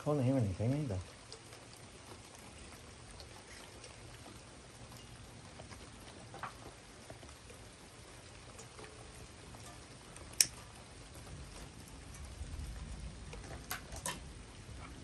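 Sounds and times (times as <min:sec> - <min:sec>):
rain dripping and pattering: 0:00.0 - 0:15.0.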